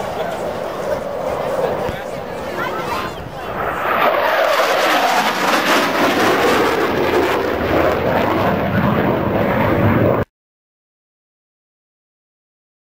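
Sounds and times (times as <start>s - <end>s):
jet engines roaring: 0.0s - 10.3s.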